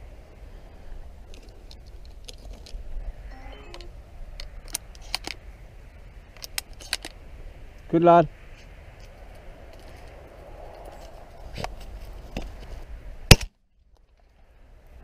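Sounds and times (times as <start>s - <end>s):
wind rumbling on microphone: 4.0s - 13.3s.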